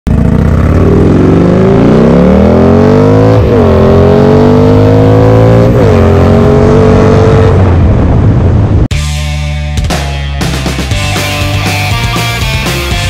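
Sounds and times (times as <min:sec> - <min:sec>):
motorcycle accelerating through gears: 0:00.1 - 0:08.8.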